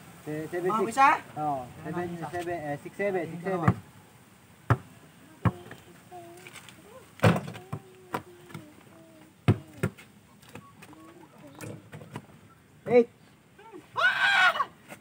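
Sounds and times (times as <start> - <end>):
basketball bouncing on dirt: 3.6 - 3.9, 4.6 - 5.8, 7.2 - 8.7, 9.4 - 11.0.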